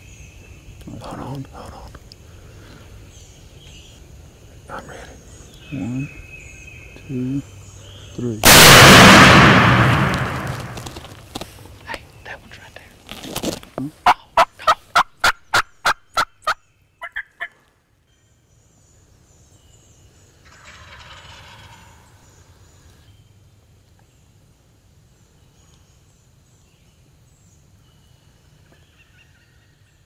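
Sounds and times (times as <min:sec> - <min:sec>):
low rumble: 0:08.4 - 0:11.1
wild turkey calling: 0:14.0 - 0:17.6, 0:20.4 - 0:22.6, 0:28.7 - 0:29.8.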